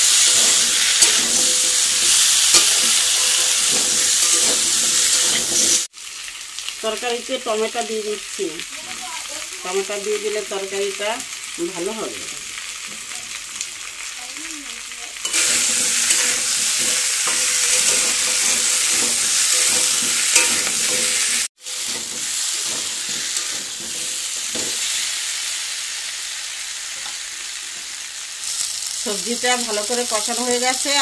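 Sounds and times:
metal spatula scraping a wok: 0:00.0 - 0:05.9, 0:15.2 - 0:25.1
vegetables sizzling in oil: 0:00.0 - 0:31.0.

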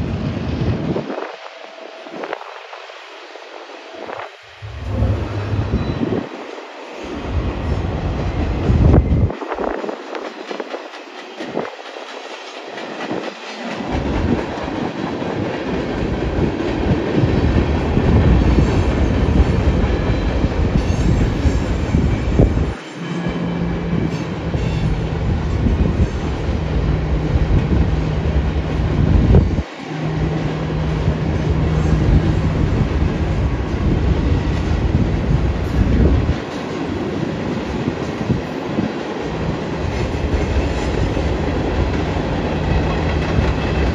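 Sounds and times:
train wheels rumbling on rail: 0:00.0 - 0:43.9.

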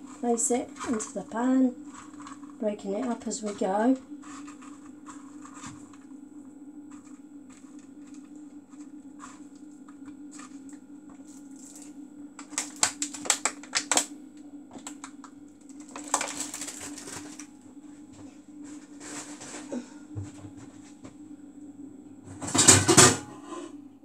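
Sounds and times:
steady low hum: 0:00.0 - 0:24.0
plastic bag crinkling: 0:11.3 - 0:14.1, 0:14.8 - 0:17.5.

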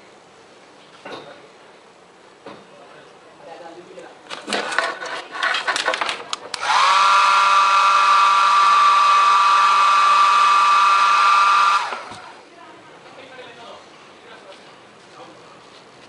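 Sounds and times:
hair dryer whine and air rush: 0:06.6 - 0:12.4.

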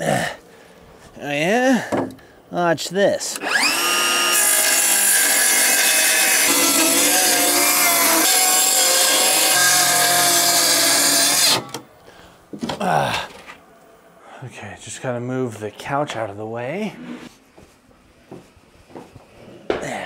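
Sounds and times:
circular saw cutting plywood: 0:03.4 - 0:11.8.

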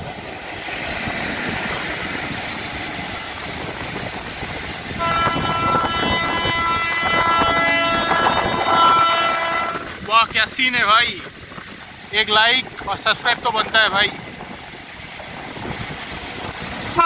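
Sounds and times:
goods train rolling past: 0:00.0 - 0:17.0
locomotive horn blast: 0:05.0 - 0:09.9.

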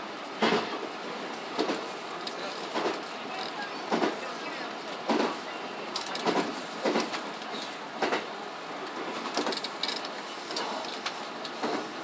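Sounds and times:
train running noise: 0:00.0 - 0:12.0
wheels clacking over rail joints: 0:08.9 - 0:11.9.

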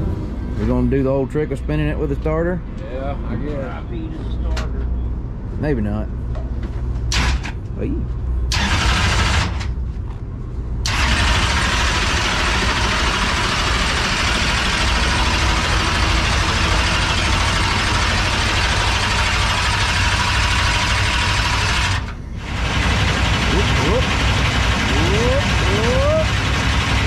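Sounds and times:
starter motor cranking engine: 0:08.5 - 0:09.7, 0:10.8 - 0:27.0
steady low hum: 0:11.5 - 0:27.0.

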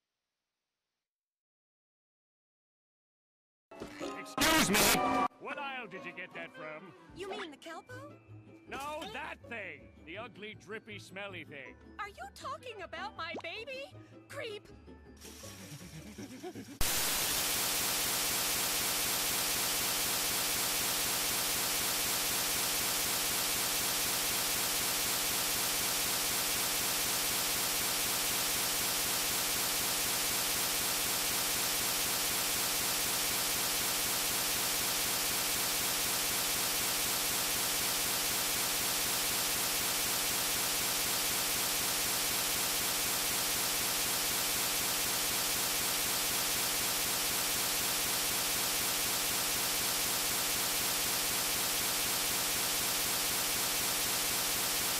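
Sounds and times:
looping harsh static: 0:16.8 - 0:54.9.

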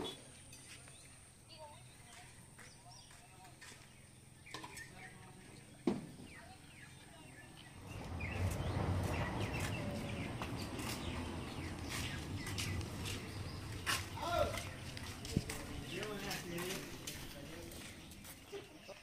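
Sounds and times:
steady low rumble: 0:07.7 - 0:18.2.

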